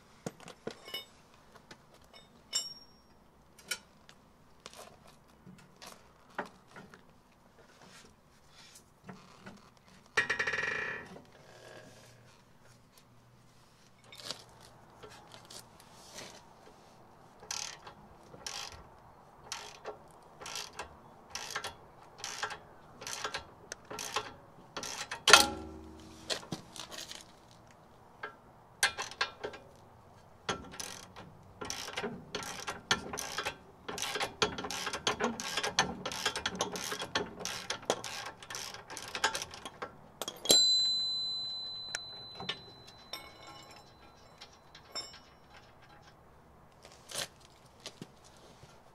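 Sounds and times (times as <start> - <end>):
metallic clang ringing: 2.2 - 3.2, 25.3 - 26.4, 40.3 - 45.6.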